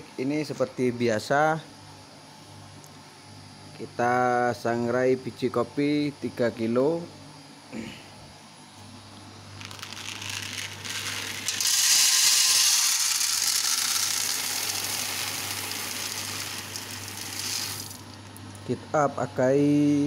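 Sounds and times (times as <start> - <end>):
coffee beans poured into steel pan: 9.6 - 18.1.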